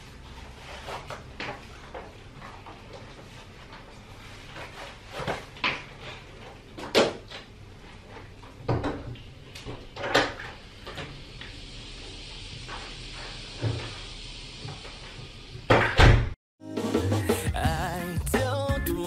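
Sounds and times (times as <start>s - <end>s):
outdoor hiss: 10.3s - 15.7s.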